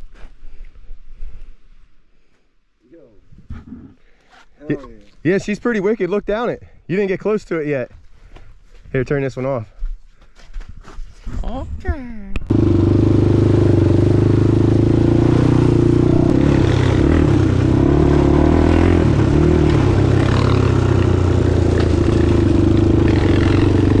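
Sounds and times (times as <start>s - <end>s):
quad bike engine running: 12.5s - 24.0s.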